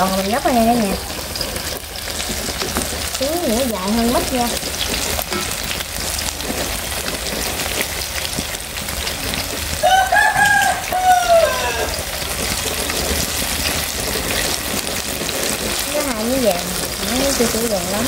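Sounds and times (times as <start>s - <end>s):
food deep-frying in hot oil: 0.0s - 18.0s
rooster crowing: 9.8s - 12.3s.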